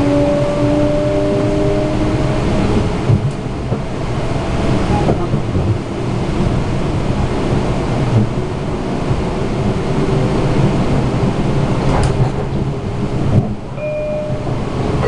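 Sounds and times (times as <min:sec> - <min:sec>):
train rumble and rush: 0:00.0 - 0:15.0
multi-tone whine: 0:13.8 - 0:15.0.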